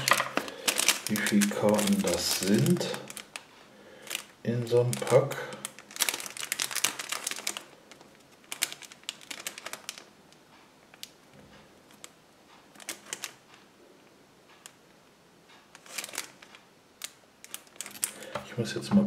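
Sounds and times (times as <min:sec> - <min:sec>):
trading cards and packaging clicking: 0:00.0 - 0:10.1, 0:11.9 - 0:13.4, 0:15.7 - 0:18.5.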